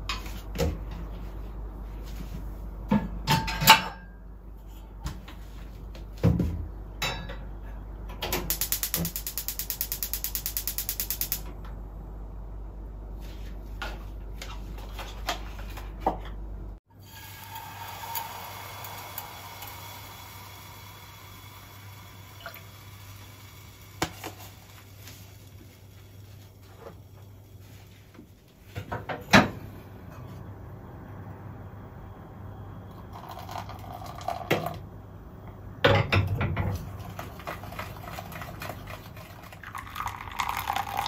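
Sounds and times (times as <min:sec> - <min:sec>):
gas stove igniter clicking: 0:08.4 - 0:11.5.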